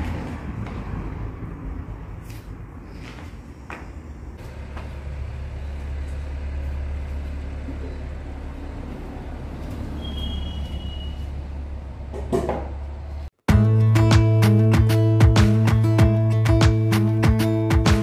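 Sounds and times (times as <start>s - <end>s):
low engine rumble: 0.0s - 13.3s.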